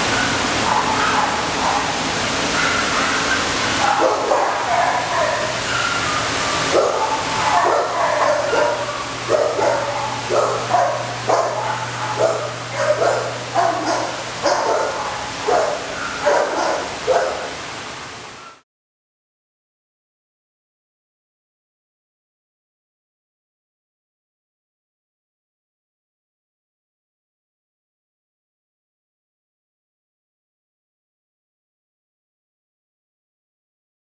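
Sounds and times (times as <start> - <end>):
dogs barking and yipping: 0.0 - 18.6.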